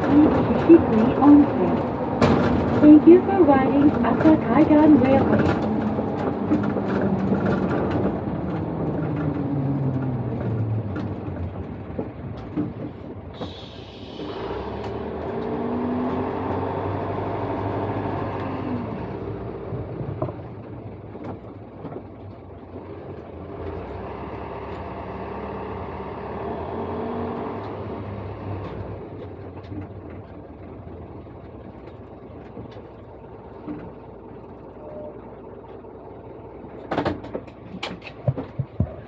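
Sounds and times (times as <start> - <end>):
bus engine drone: 0.0 - 39.0
road noise inside vehicle: 0.0 - 39.0.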